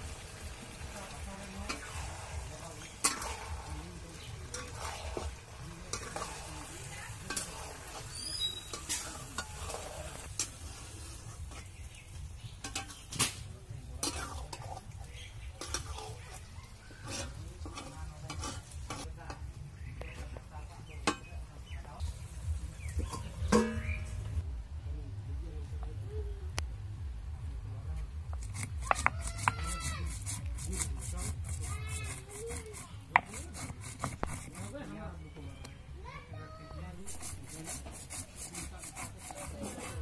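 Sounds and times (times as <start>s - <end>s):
food sizzling in wok: 0.0s - 19.1s
spatula scraping and knocking wok: 0.0s - 24.4s, 28.0s - 35.0s, 37.0s - 40.0s.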